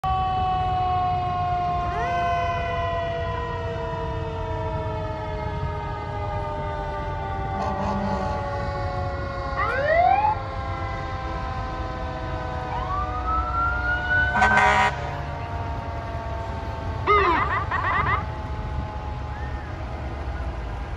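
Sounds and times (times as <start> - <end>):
fire engine sirens wailing: 0.0 - 20.9
truck engines rumbling: 0.0 - 20.9
short horn blast: 7.6 - 8.4, 14.3 - 15.1.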